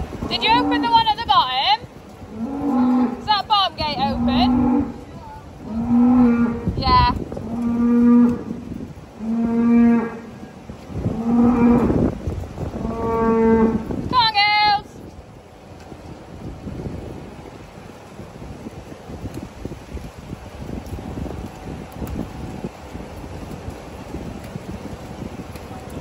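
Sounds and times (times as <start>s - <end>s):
cows mooing: 0.3s - 1.2s, 2.3s - 10.4s, 11.1s - 12.0s, 12.8s - 13.9s.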